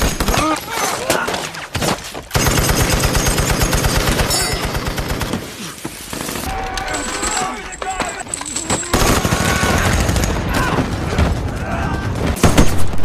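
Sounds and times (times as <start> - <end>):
machine gun firing: 2.3 - 6.5, 8.9 - 13.0.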